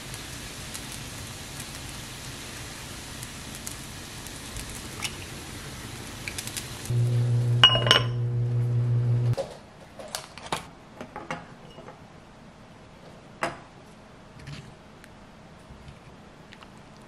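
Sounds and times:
steady low hum: 0:06.8 - 0:09.4
pot lid and utensils clinking: 0:07.6 - 0:08.2
sharp ringing clink: 0:07.6 - 0:08.2.

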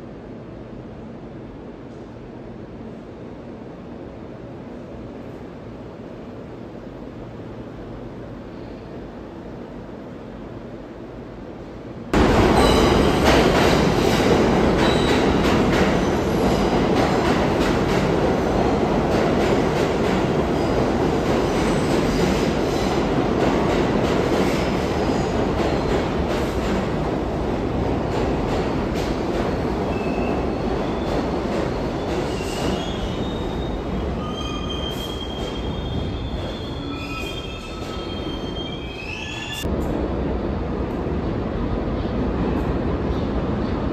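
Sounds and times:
subway train rumbling: 0:00.0 - 0:43.9
high wheel squeals: 0:32.3 - 0:39.6.

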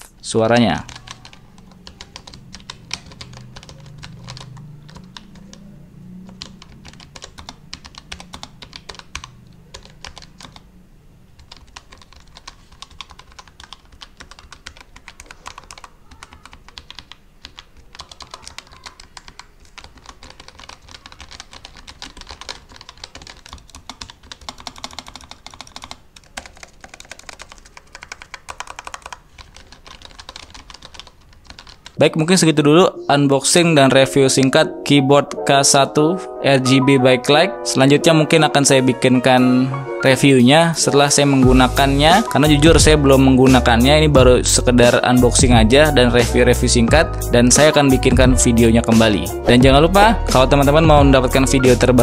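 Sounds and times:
fast typing on mechanical keyboard: 0:00.6 - 0:10.7, 0:11.4 - 0:32.0.

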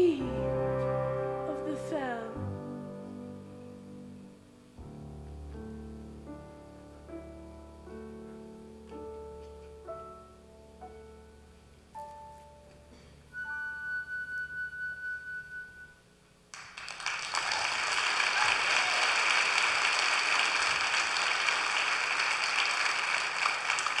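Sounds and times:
held musical chord: 0:00.0 - 0:11.8
audience applause: 0:16.5 - 0:24.0.

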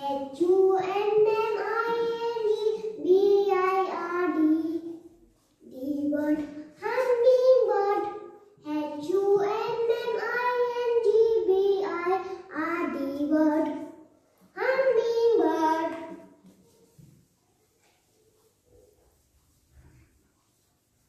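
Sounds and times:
child singing: 0:00.0 - 0:14.0, 0:14.6 - 0:16.2.

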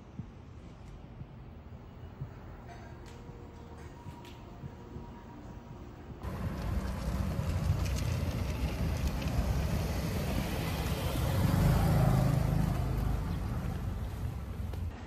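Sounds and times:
car passing close by: 0:06.2 - 0:14.7.

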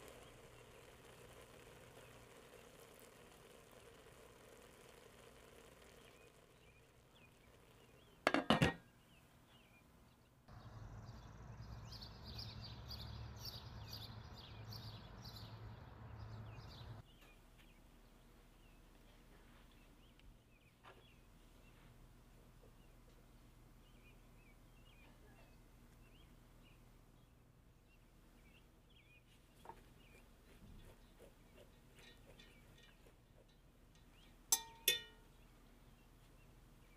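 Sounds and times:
birds chirping: 0:00.0 - 0:36.9
kitchenware clattering: 0:08.3 - 0:08.8.

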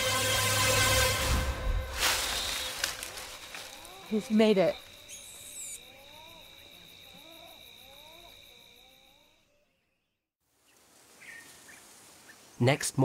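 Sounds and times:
short rising and falling animal calls: 0:02.2 - 0:09.7.

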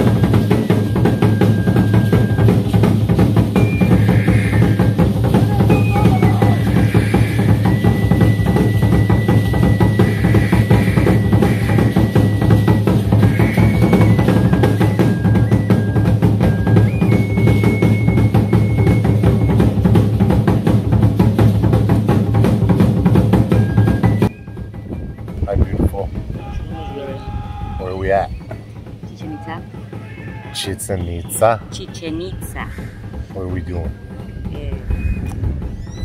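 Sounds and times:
steady drum beat: 0:00.0 - 0:36.0
high held melody line: 0:07.5 - 0:20.0, 0:23.4 - 0:36.0.

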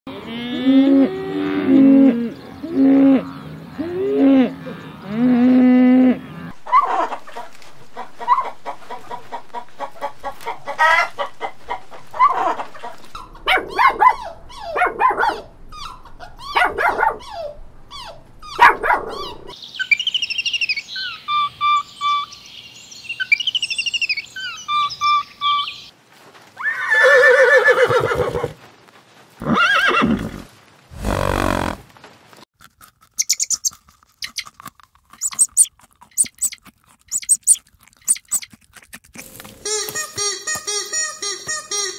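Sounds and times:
animal calls: 0:00.9 - 0:19.6, 0:31.0 - 0:31.8, 0:35.2 - 0:38.6
hen clucking: 0:06.5 - 0:19.6, 0:35.2 - 0:38.6
high rapid chirping: 0:35.2 - 0:38.5.

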